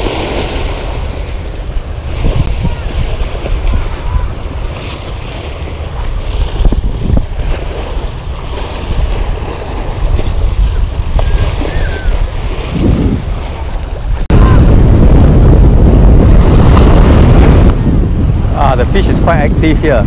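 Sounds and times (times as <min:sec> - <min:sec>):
sea waves washing against rocks: 0:00.0 - 0:20.0
wind buffeting microphone: 0:00.0 - 0:20.0.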